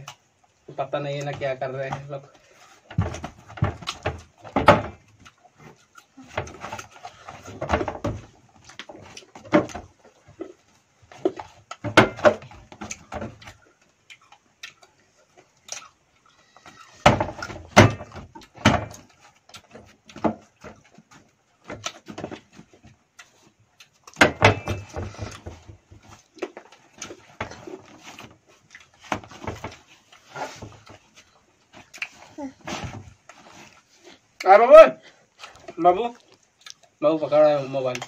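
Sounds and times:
crunchy fruit being chewed: 5.0 - 7.5, 8.3 - 11.8, 12.6 - 17.0, 18.2 - 24.2, 24.8 - 38.0.

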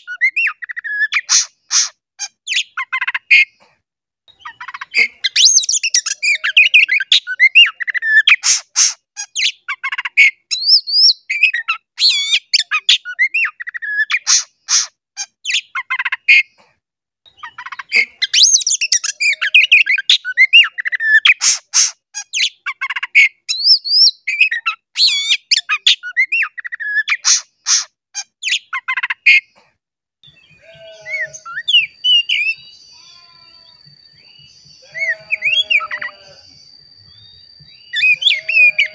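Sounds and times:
songbird whistling and clicking: 19.7 - 29.4
faint bird calls: 28.5 - 38.9.

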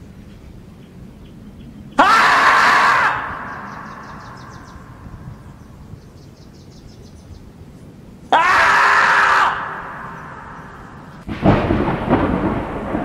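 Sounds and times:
loud animal scream: 2.0 - 5.0, 8.3 - 11.1
thunderclap sound effect: 11.2 - 13.0.

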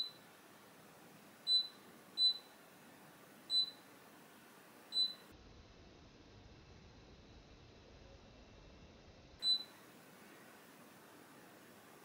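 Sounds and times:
short high keypad beeps: 1.5 - 2.5, 3.5 - 3.8, 4.9 - 5.3, 9.4 - 9.8.

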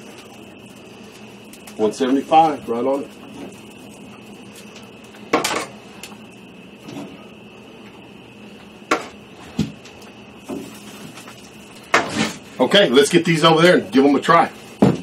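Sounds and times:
faint high hum: 0.0 - 15.0
dull thump: 14.8 - 15.0.

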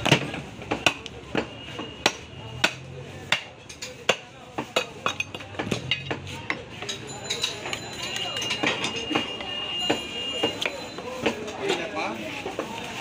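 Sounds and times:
cleaver chopping on wooden block: 0.0 - 3.5.

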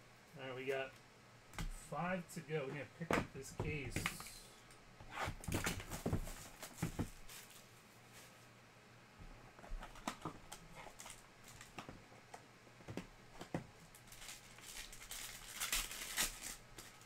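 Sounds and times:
foil wrapper crinkling: 9.8 - 11.9, 13.8 - 17.0.

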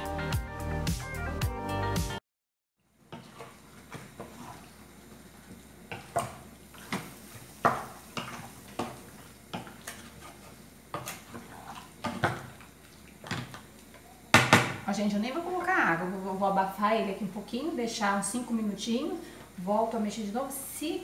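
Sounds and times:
wooden spoon knocking metal pot: 14.3 - 14.8.

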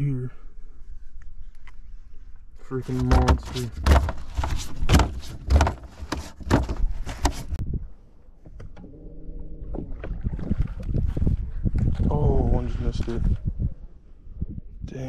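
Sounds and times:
knocks and thumps on boat deck: 3.0 - 7.6.

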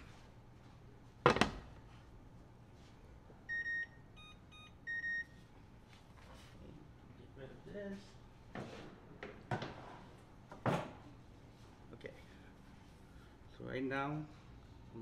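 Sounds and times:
appliance control panel beeps: 3.5 - 5.4.

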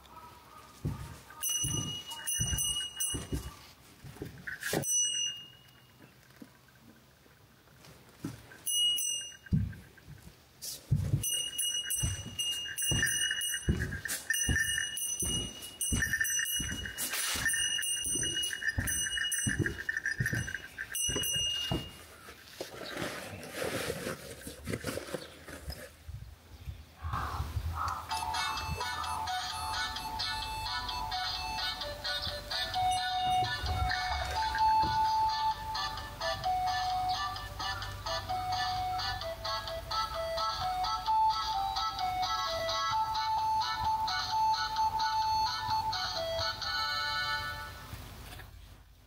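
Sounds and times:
footsteps crunching over debris: 0.7 - 4.8, 9.5 - 26.0
high bell-like tone: 1.4 - 3.7, 4.5 - 6.0, 8.7 - 9.8, 11.2 - 22.1, 32.7 - 36.0
rustling through dry grass: 16.3 - 25.8.

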